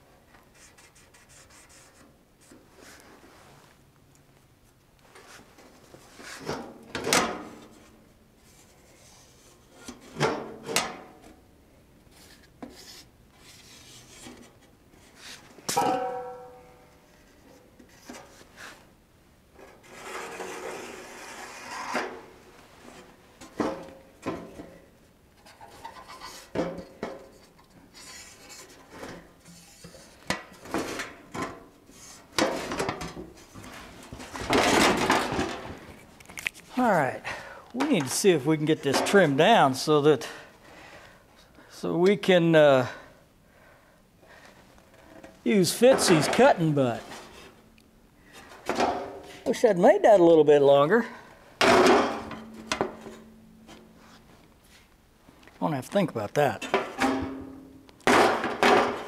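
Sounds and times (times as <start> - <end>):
short metallic ring: 15.8 - 17.0.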